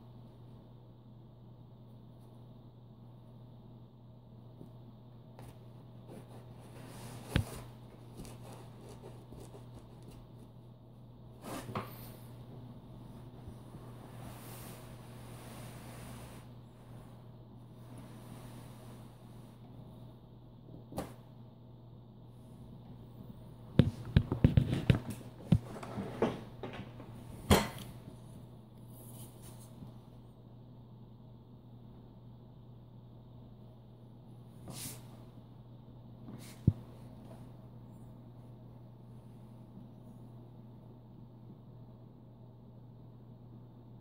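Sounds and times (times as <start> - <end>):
steady low hum: 0.0 - 44.0
fabric scuffle: 13.2 - 17.2.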